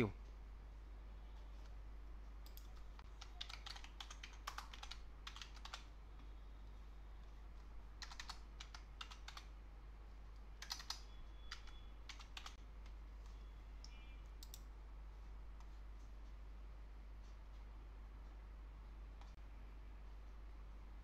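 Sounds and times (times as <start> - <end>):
computer keyboard keys clicking: 2.4 - 5.9, 8.0 - 9.5, 10.6 - 12.6.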